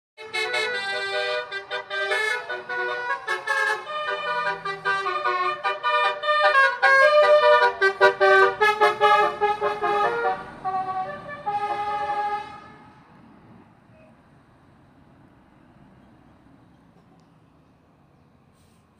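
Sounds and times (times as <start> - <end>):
musical air horn tune: 0.2 - 12.9
faint road noise: 0.2 - 18.9.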